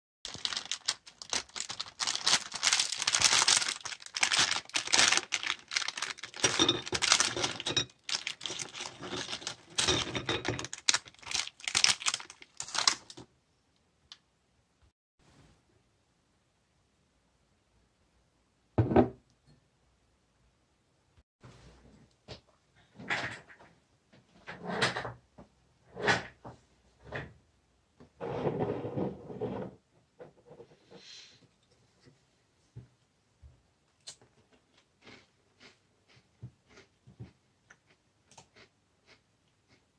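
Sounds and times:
plastic wrapper crinkling: 0:00.3 - 0:13.3.

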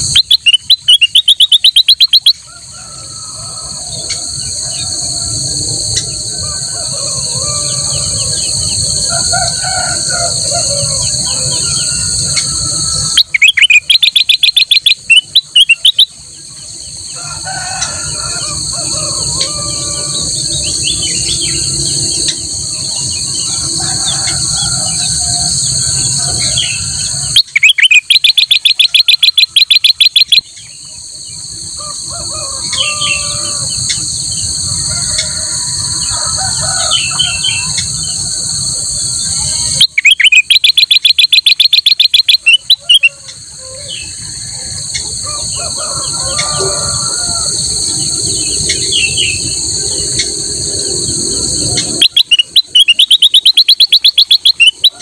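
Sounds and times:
bird singing chirps: 0:00.0 - 0:02.4, 0:10.3 - 0:17.1, 0:19.4 - 0:31.6, 0:39.2 - 0:45.7, 0:48.1 - 0:50.4, 0:51.4 - 0:55.0
rapid bird chattering: 0:00.0 - 0:02.4, 0:13.2 - 0:16.1, 0:26.4 - 0:30.5, 0:39.7 - 0:43.1, 0:51.8 - 0:55.0
high insect drone: 0:00.0 - 0:55.0.

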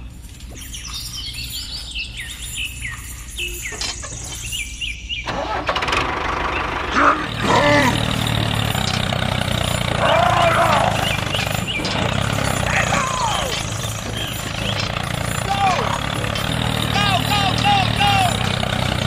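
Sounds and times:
short bird chirps: 0:00.5 - 0:05.3
tractor engine starting and running: 0:05.2 - 0:19.0.

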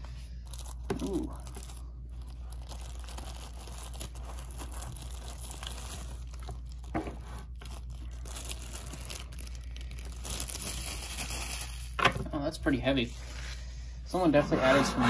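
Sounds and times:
plastic bag crinkling: 0:00.3 - 0:12.2.

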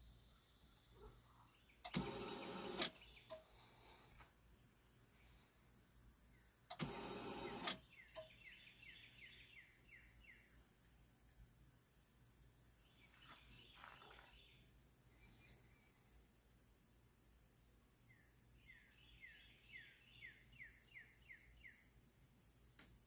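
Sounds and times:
bird chirping: 0:00.0 - 0:04.1, 0:07.4 - 0:11.5, 0:12.6 - 0:16.1, 0:18.0 - 0:22.0
faint background hiss: 0:00.0 - 0:23.0.

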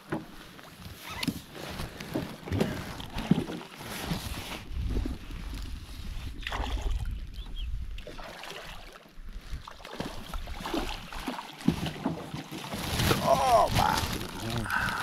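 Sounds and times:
wind buffeting microphone: 0:04.6 - 0:08.1.

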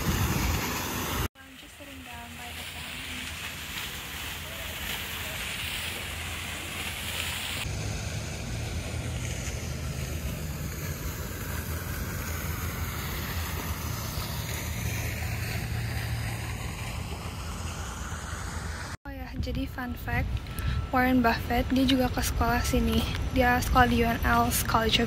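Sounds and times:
wind rumbling on microphone: 0:00.0 - 0:01.3, 0:02.8 - 0:25.0
fountain water splashing: 0:00.0 - 0:19.0, 0:19.9 - 0:25.0.

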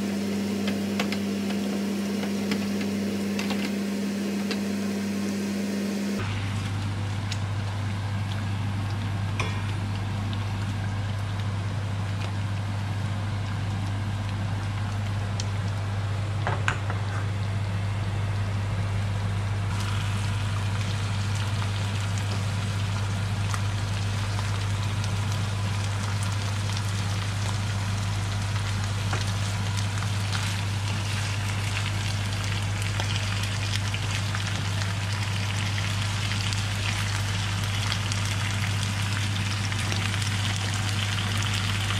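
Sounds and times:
steady low hum: 0:00.0 - 0:41.9
food sizzling in a frying pan: 0:19.7 - 0:41.9.

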